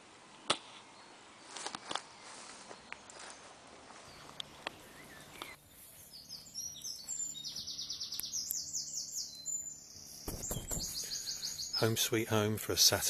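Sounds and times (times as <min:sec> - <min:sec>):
background hiss: 0:00.0 - 0:13.0
songbird trilling: 0:04.1 - 0:12.0.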